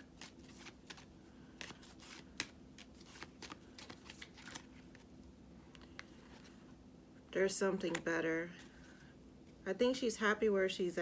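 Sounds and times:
cards being shuffled: 0:00.0 - 0:06.6, 0:07.8 - 0:09.0.

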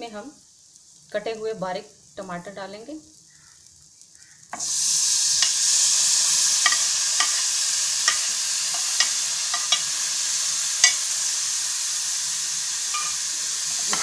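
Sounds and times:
spices sizzling in hot oil: 0:00.0 - 0:14.0
metal spoon clinking on pan: 0:06.6 - 0:07.5, 0:08.1 - 0:09.9, 0:10.8 - 0:11.0, 0:12.9 - 0:13.2.

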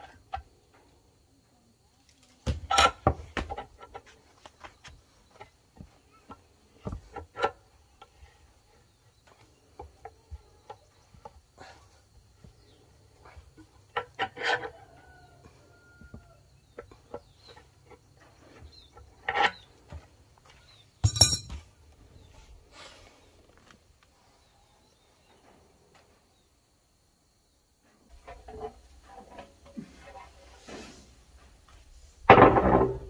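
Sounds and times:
wrench clanking down: 0:21.0 - 0:21.6.

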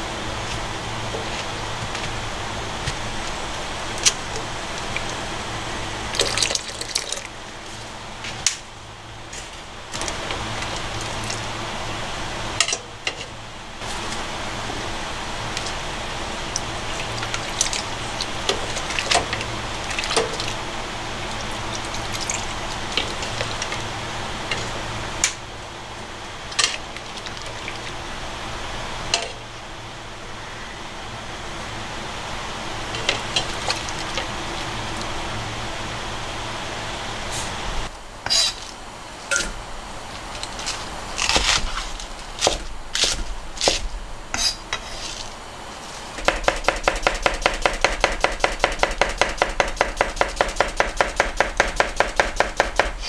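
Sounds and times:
broth simmering in a pot: 0:13.8 - 0:38.0.

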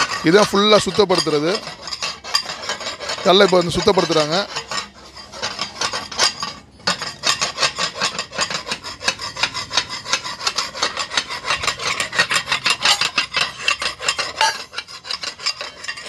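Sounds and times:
metal tool rasping iron edge: 0:00.0 - 0:16.0.

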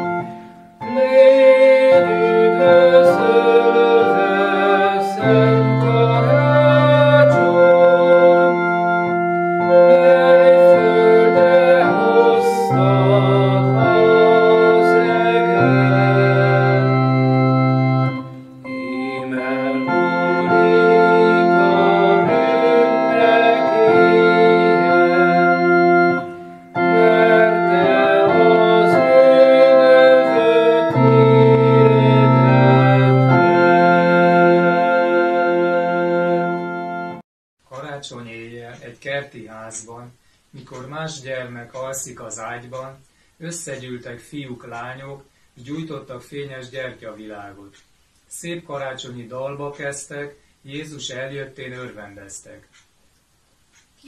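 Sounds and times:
clarinet melody: 0:00.0 - 0:37.2
organ chords: 0:00.0 - 0:37.2.

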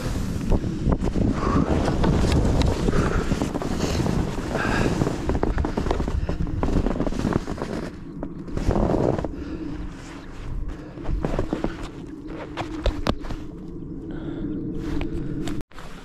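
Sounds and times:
wind buffeting microphone: 0:00.0 - 0:15.6.

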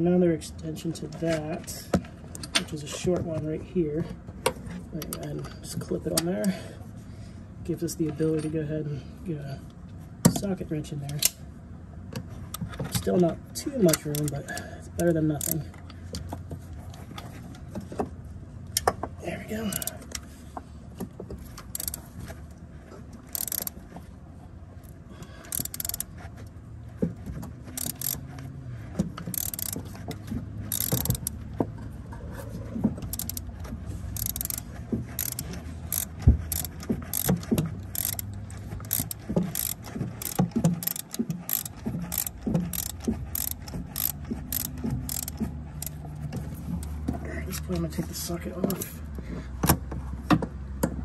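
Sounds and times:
ratchet clicking: 0:13.9 - 0:15.7, 0:19.7 - 0:20.2, 0:21.5 - 0:22.1, 0:23.3 - 0:23.8, 0:24.8 - 0:26.2, 0:27.6 - 0:28.3, 0:29.2 - 0:31.4, 0:33.0 - 0:47.0.

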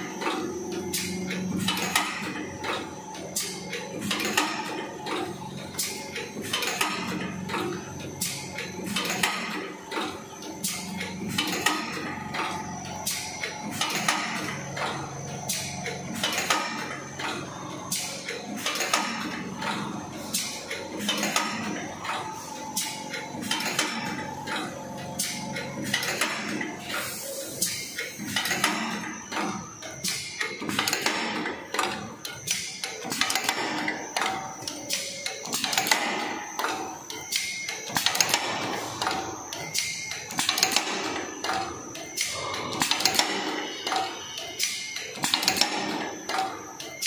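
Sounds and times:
steady machine hum: 0:00.0 - 0:47.0.

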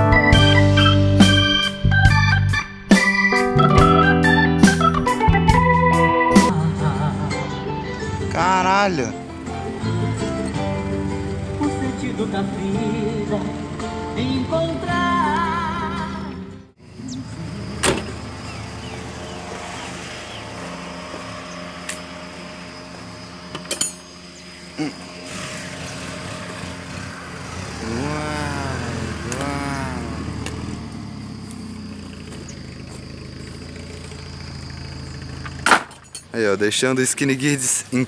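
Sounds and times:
car engine and road rumble: 0:04.6 - 0:38.0
car knocks and rattles: 0:35.4 - 0:36.3.

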